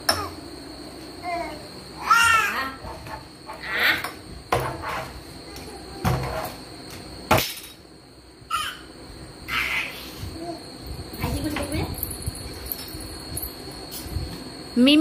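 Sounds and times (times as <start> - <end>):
baby squealing and shouting: 8.5 - 8.9, 9.5 - 10.1.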